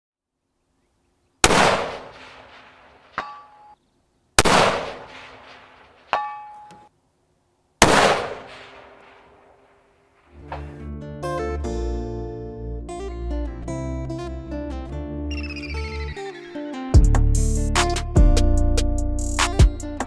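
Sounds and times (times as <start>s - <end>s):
rifle shots: 1.4s - 3.2s, 4.4s - 6.2s, 7.8s - 9.8s
steel target ringing: 6.1s - 6.8s
acoustic guitar music: 10.3s - 20.0s.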